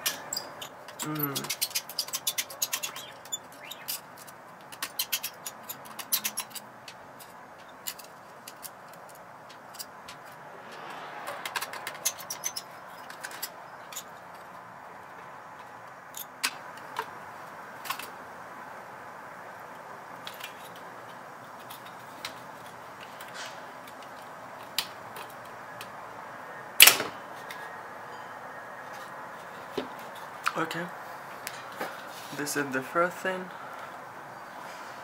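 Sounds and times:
loud clack of parts: 26.8s - 27.2s.

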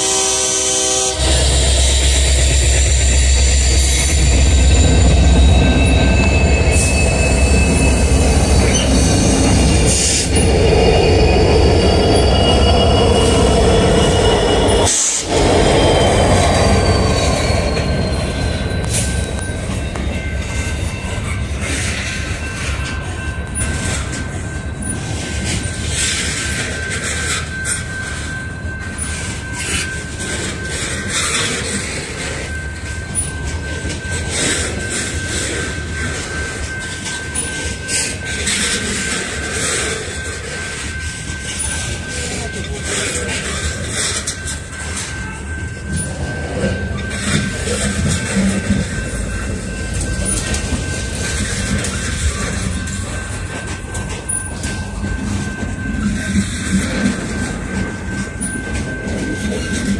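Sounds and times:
locomotive engines rumbling: 0.0s - 59.9s
train wheels squealing: 0.0s - 59.9s
wheels clicking over rail joints: 13.3s - 59.9s.

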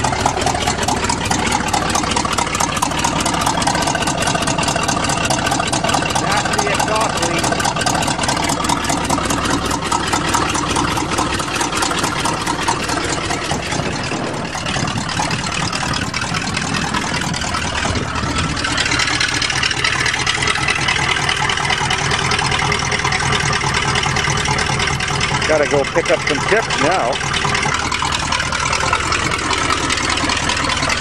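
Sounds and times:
truck engine running: 0.0s - 31.0s.

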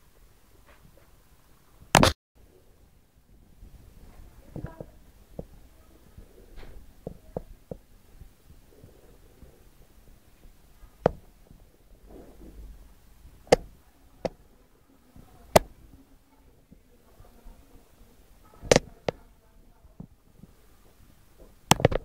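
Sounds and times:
faint low hum: 0.0s - 22.0s
sharp clicks or knocks: 1.9s - 2.2s, 13.4s - 14.4s, 21.7s - 22.0s.

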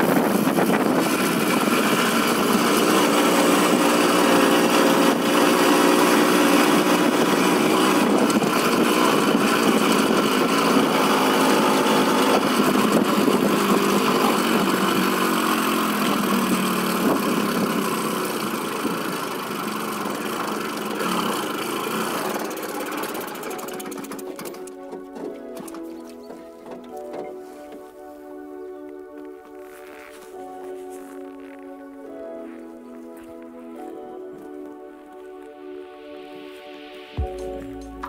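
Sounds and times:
moped engine running: 0.0s - 27.1s.

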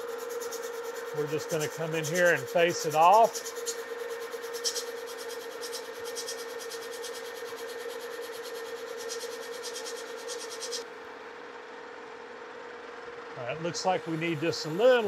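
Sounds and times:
lathe tool scraping metal: 0.0s - 10.8s, 13.7s - 15.0s
lathe motor humming: 0.0s - 15.0s.

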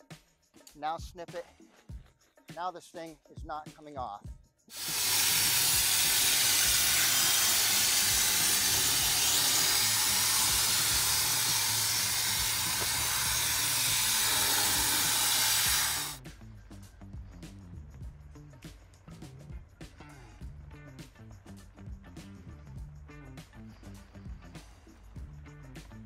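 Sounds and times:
background music with a beat: 0.0s - 26.0s
spray foam gun hissing: 4.7s - 16.2s.

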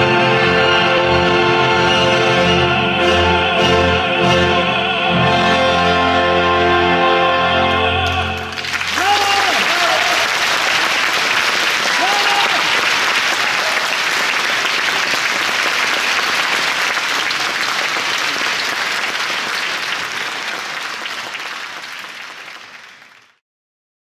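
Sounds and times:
audience applauding: 8.0s - 23.4s.

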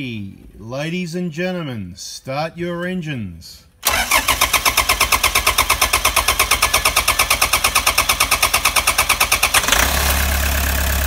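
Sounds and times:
diesel engine cranking and idling: 3.8s - 11.0s.

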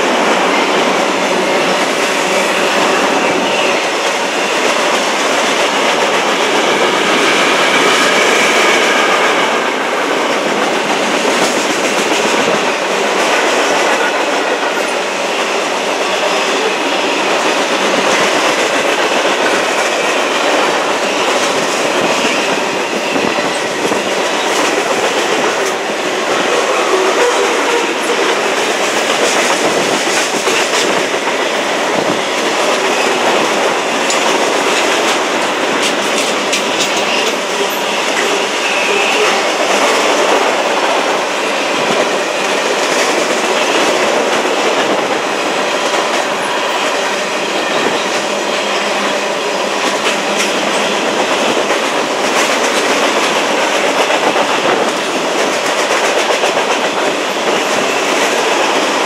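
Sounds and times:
steel wheels rolling on rail: 0.0s - 59.0s.

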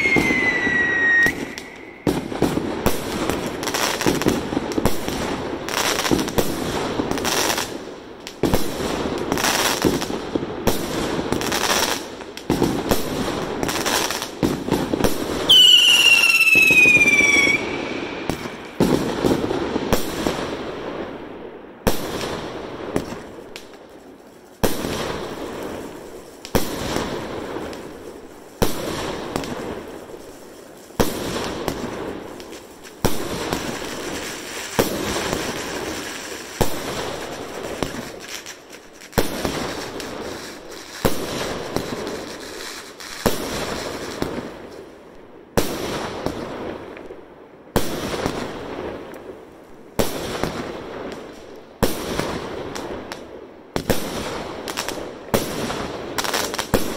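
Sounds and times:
falling firework whistle: 0.0s - 3.0s, 15.4s - 19.4s
firework bangs and crackles: 0.0s - 56.9s.

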